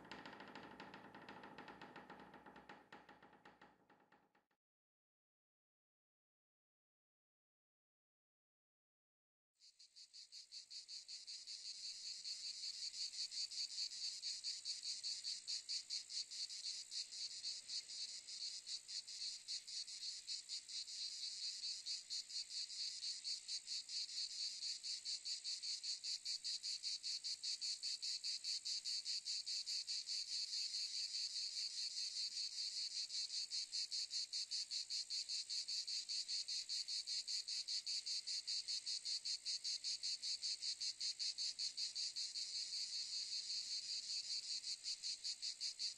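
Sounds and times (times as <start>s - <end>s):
insect chirring trill: 9.7s - 45.9s.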